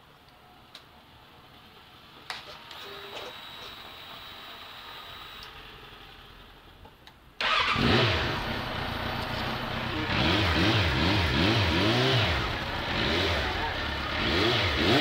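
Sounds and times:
motorcycle engine revving: 7.4s - 15.0s.

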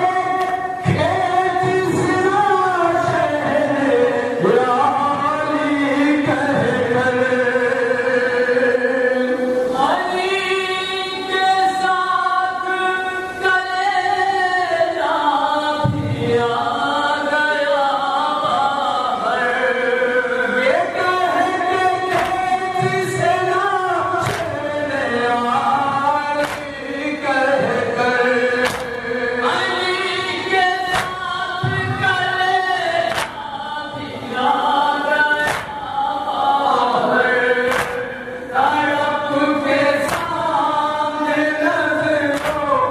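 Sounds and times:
men chanting a lament: 0.0s - 42.9s
chest-beating slaps: 22.1s - 22.5s, 24.2s - 24.6s, 26.4s - 26.8s, 28.6s - 29.0s, 30.9s - 31.3s, 33.1s - 33.4s, 35.4s - 35.8s, 37.7s - 38.1s, 40.0s - 40.4s, 42.3s - 42.8s.

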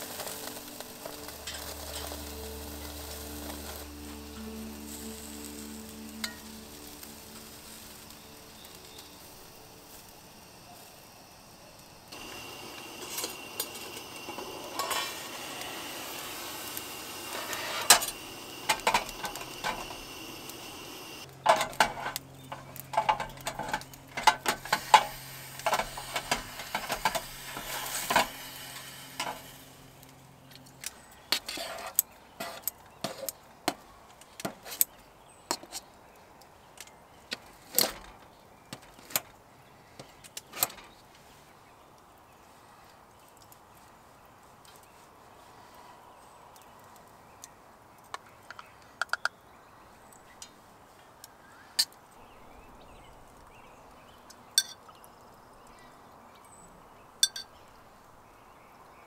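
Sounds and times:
low steady hum: 0.0s - 31.2s
steady hiss: 0.0s - 36.0s
metal cookware clattering: 12.2s - 15.4s, 17.3s - 20.0s.

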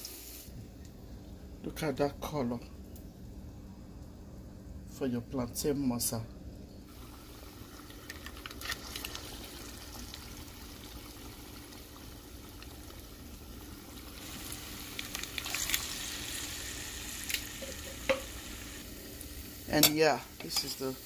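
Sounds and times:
fritters sizzling in hot oil: 6.9s - 21.0s.

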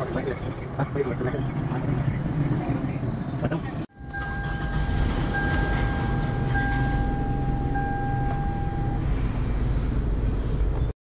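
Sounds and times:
car warning chime: 3.9s - 9.2s.

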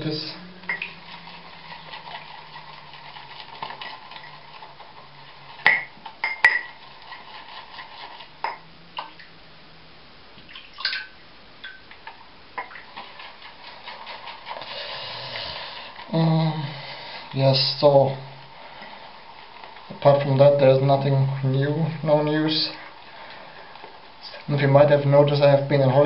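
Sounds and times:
shaving brush swishing lather: 0.0s - 5.6s, 6.7s - 8.4s, 12.8s - 23.1s.

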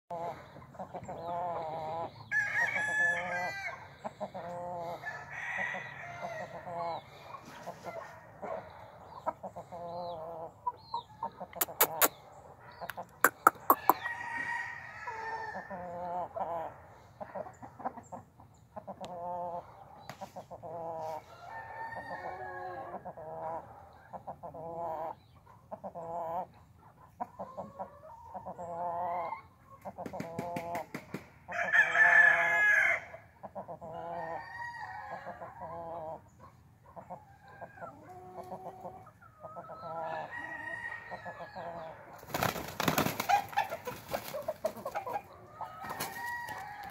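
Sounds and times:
chickens clucking: 0.1s - 46.9s
rooster crowing: 2.3s - 3.8s, 5.0s - 6.5s, 13.7s - 15.8s, 31.5s - 33.1s, 40.0s - 41.9s, 45.7s - 46.9s.

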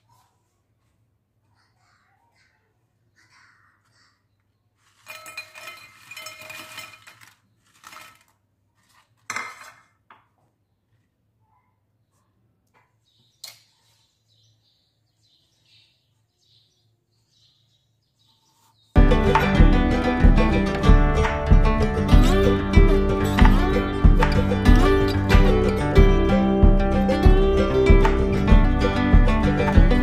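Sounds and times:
snacks rattling into a bowl: 4.8s - 9.0s
dishes clinking and knocking: 5.1s - 7.2s.

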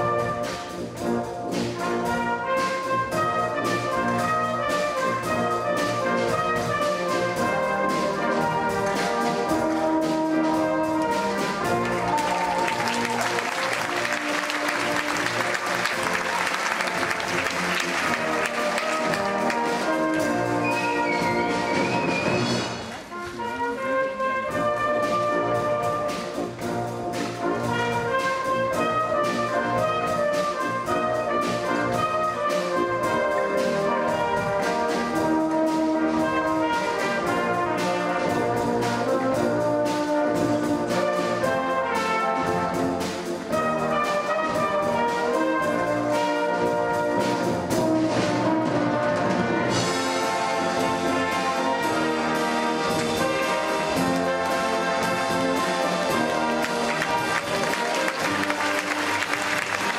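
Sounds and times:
orchestral music with brass: 0.0s - 59.9s.

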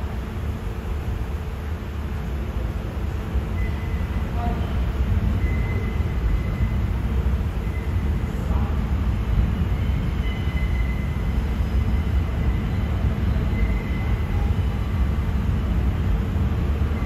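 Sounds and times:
subway train rumbling: 0.0s - 17.0s
faint high whine: 3.0s - 15.6s.

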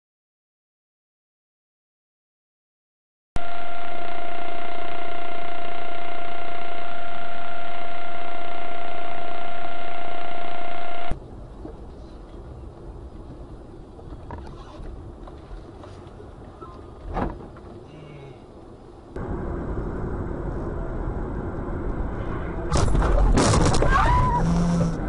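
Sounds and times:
loud steady tone: 3.4s - 11.2s, 24.0s - 25.0s
road rumble inside moving car: 11.1s - 25.0s.

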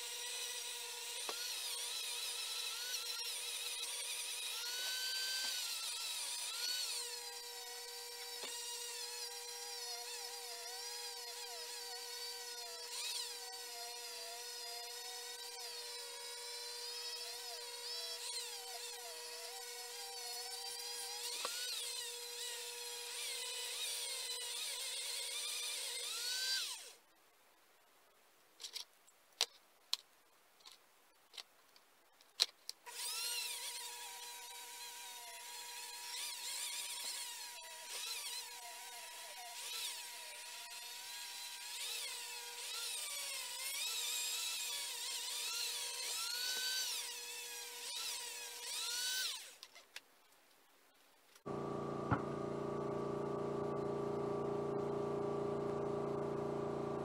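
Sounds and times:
rotary tool grinding metal: 0.0s - 27.0s, 32.9s - 49.8s.

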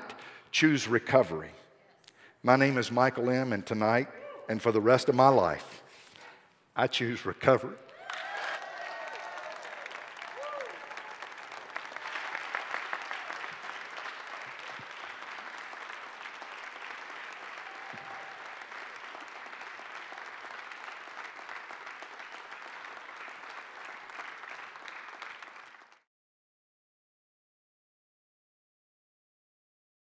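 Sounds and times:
audience applauding: 7.9s - 26.1s.

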